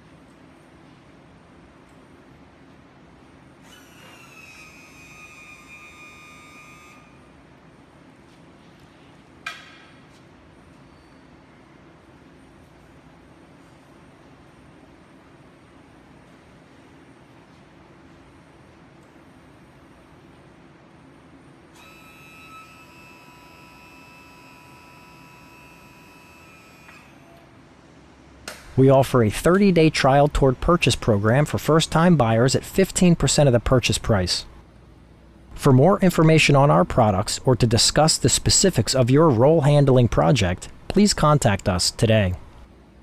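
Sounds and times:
hydraulic pump whining: 3.6s - 7.2s, 21.8s - 27.5s.

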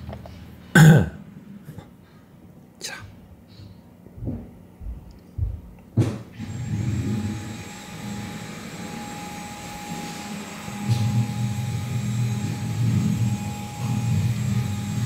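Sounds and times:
vacuum cleaner running: 6.3s - 15.0s.

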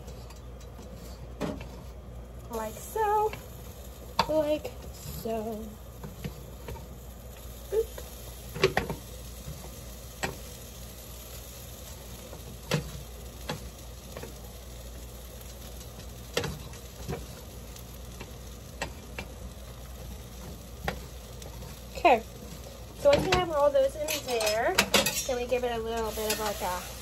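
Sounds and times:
faint hiss: 25.2s - 27.0s.

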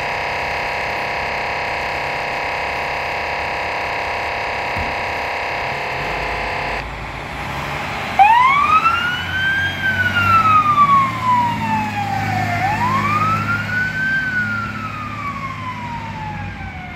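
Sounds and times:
steady multi-tone sound: 0.0s - 7.3s
fire truck siren wailing: 0.0s - 16.9s
truck engine running: 0.0s - 16.9s.

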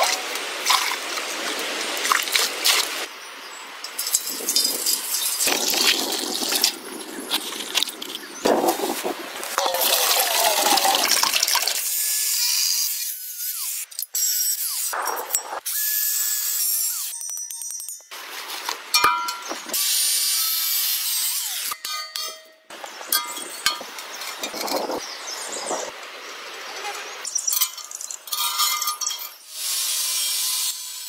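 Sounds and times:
water gushing into metal cylinder: 9.6s - 11.8s.

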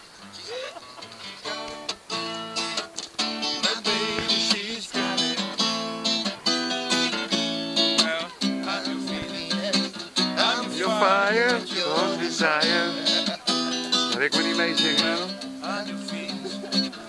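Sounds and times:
acoustic guitar strumming: 0.0s - 17.0s
person singing: 3.5s - 17.0s.

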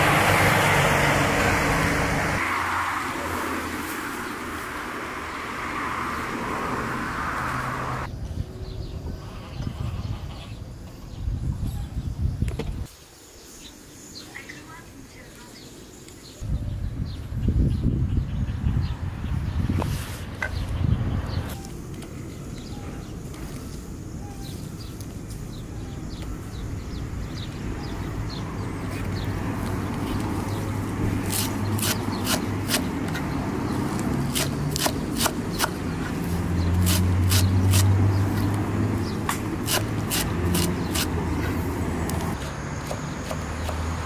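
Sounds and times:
low engine hum: 0.0s - 8.1s, 20.4s - 44.0s.

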